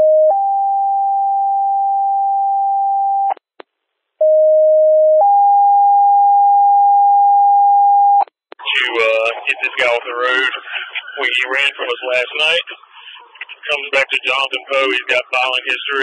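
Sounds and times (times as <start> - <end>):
two-tone radio alert: 8.6 - 16.0.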